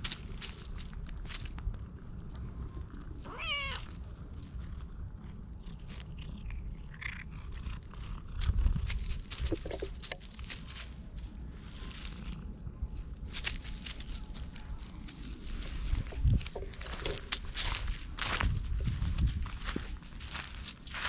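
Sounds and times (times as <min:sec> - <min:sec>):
dry leaves rustling: 0:00.0 - 0:04.6, 0:08.8 - 0:21.0
cat meowing: 0:03.2 - 0:03.9.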